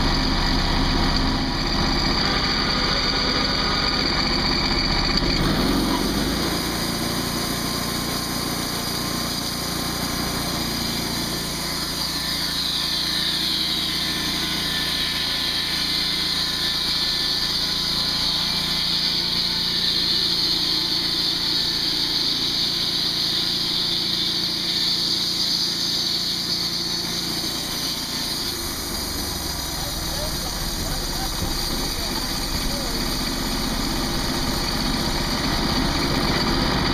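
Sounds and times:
band saw mill cutting wood: 0.0 - 36.9
high hiss of blade cutting: 5.4 - 35.4.

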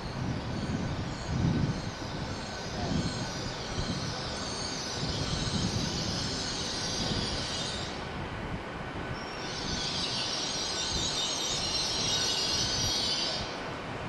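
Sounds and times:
train wheels rumbling on track: 0.0 - 8.2
high hiss: 0.0 - 14.0.

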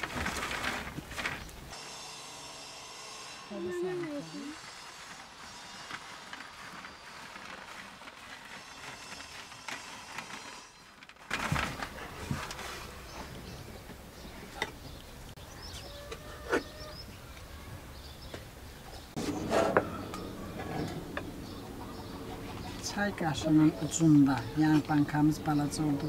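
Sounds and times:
bird chirps: 13.0 - 26.0.

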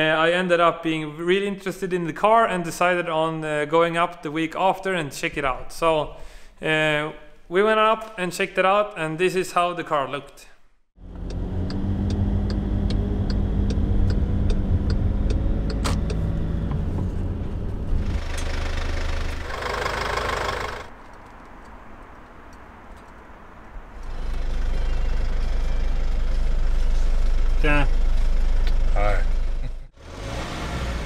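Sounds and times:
regular ticking: 11.0 - 16.9
van engine idling: 11.0 - 20.9, 24.1 - 29.9.

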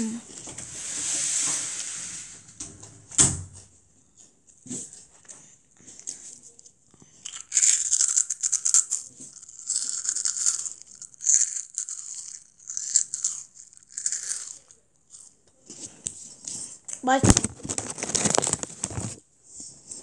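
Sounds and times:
child chewing crunchy snack: 5.0 - 16.9, 17.6 - 19.7.

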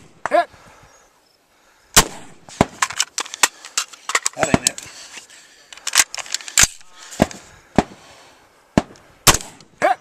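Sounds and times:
rifle cracks: 2.0 - 4.9, 5.7 - 7.4.

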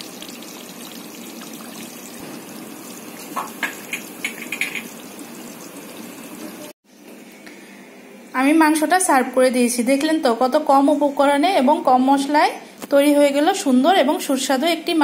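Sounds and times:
curry bubbling in a pot: 0.0 - 6.7.

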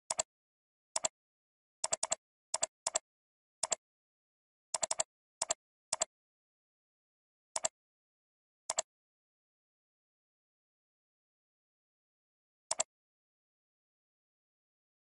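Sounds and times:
computer mouse clicks: 0.1 - 0.3, 1.0 - 1.2, 1.8 - 3.0, 4.8 - 6.1, 7.6 - 7.8, 8.7 - 8.9, 12.7 - 12.9.

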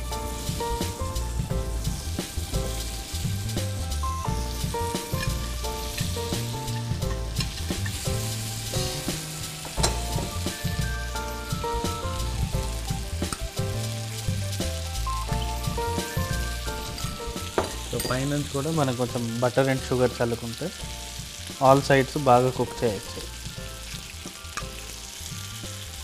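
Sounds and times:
background music with held notes: 0.0 - 26.0
butter and sugar sizzling in a pan: 0.0 - 26.0.

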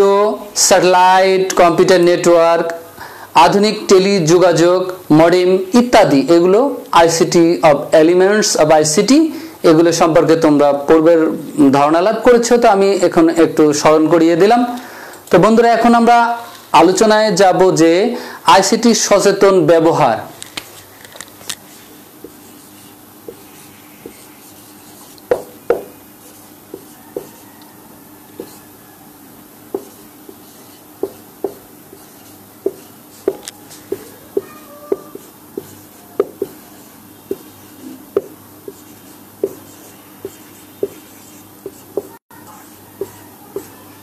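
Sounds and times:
marker writing on whiteboard: 21.4 - 28.8, 29.7 - 44.0.

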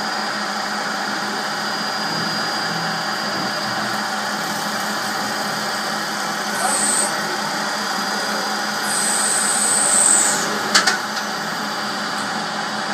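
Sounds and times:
lathe machine hum: 0.0 - 12.9
high hiss of tool cutting: 6.4 - 7.4, 8.7 - 10.9.

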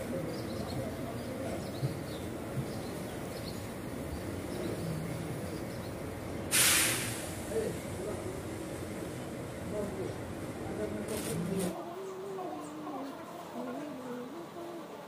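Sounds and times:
sharp burst of hiss: 6.5 - 7.8.

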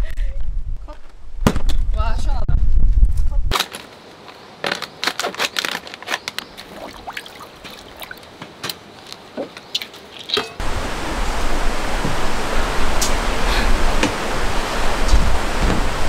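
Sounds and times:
paper crinkling: 3.5 - 7.9
mountain stream rushing: 9.8 - 16.0.

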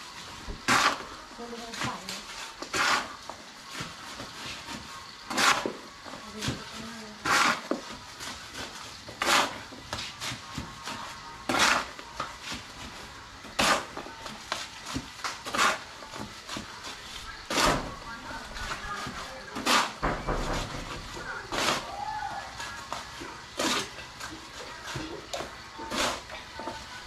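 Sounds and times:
hand tool scraping cement: 0.6 - 3.2, 3.8 - 12.7, 13.5 - 14.0, 14.6 - 17.9, 18.6 - 20.0, 21.5 - 21.9, 22.6 - 26.8.

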